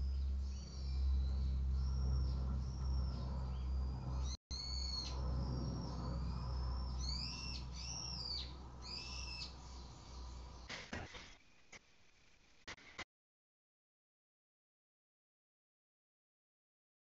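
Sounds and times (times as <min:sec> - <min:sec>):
helicopter drone: 0:00.0 - 0:10.5
birds calling in high notes: 0:00.0 - 0:10.7.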